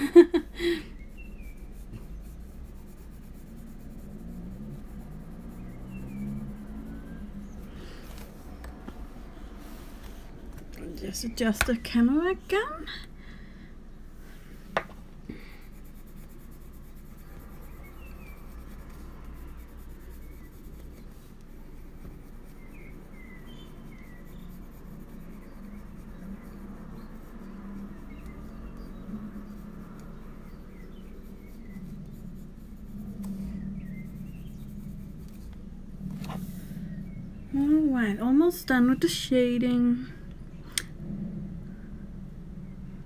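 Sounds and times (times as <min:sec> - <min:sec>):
pencil scratching on paper: 0:00.8 - 0:12.6, 0:15.3 - 0:36.8.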